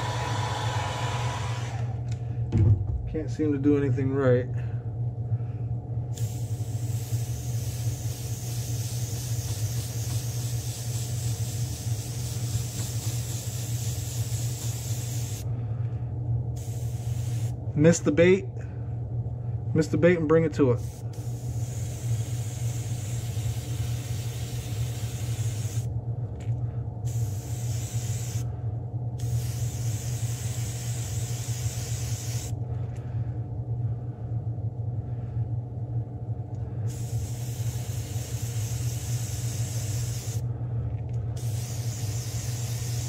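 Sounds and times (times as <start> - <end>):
low motor hum: 0.0 - 7.7, 25.7 - 27.5, 32.5 - 37.3, 40.4 - 41.4
airbrush hissing: 6.1 - 15.5, 16.6 - 17.6, 20.8 - 25.9, 27.1 - 28.5, 29.2 - 32.6, 36.9 - 40.4, 41.4 - 43.0.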